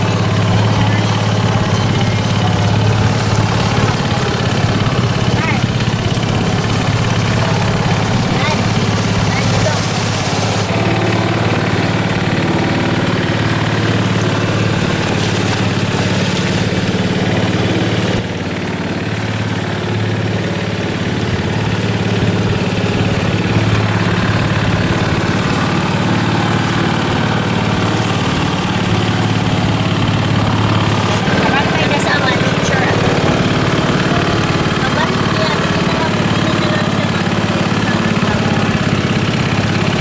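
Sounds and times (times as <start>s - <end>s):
boat engine humming: 0.0s - 40.0s.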